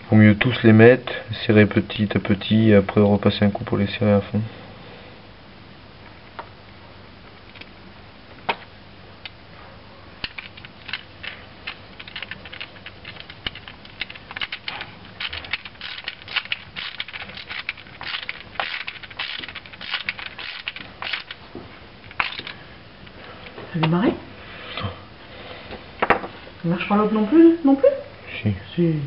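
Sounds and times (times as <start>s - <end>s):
screwdriver turning metal screws: 12.0s - 21.4s.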